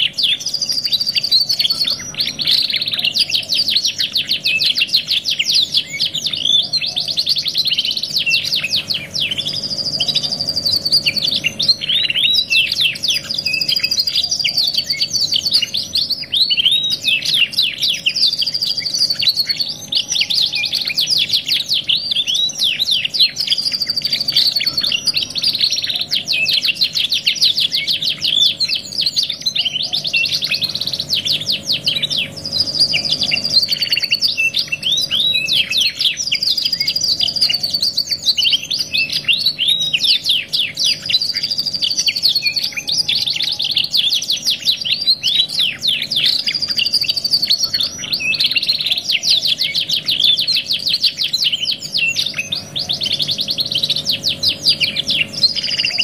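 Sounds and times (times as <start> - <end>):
canaries singing trills: 0.0 - 56.0.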